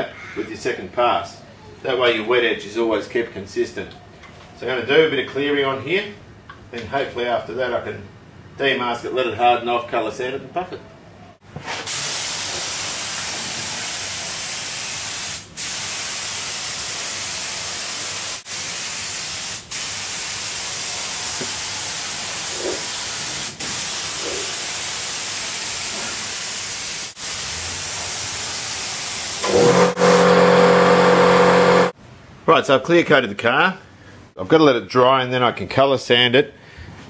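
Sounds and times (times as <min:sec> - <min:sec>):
spray gun hissing: 0:11.9 - 0:32.0.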